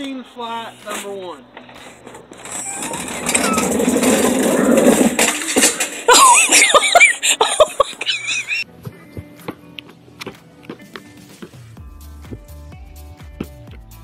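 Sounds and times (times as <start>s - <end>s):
shopping cart crashing: 1.7s - 7.8s
shopping cart rattling down ramp: 1.8s - 7.2s
people laughing and shrieking: 6.0s - 8.6s.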